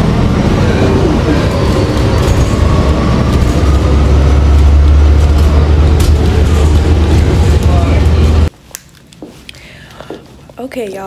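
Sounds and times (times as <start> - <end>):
bus engine and road rumble: 0.0 - 8.5.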